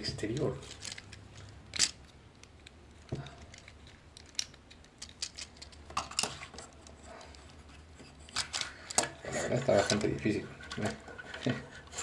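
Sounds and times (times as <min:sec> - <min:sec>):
plastic toy parts clicking: 0:00.3 - 0:06.3.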